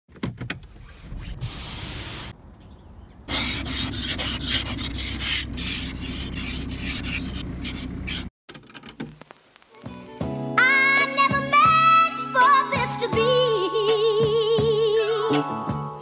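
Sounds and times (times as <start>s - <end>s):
ice scraper scraping frost: 3.3s - 8.3s.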